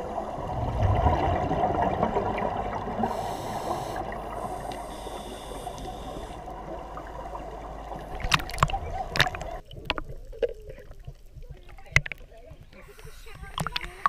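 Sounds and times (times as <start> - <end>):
bubbles gurgling: 0.0 - 10.9
scuba regulator breathing: 2.9 - 7.7.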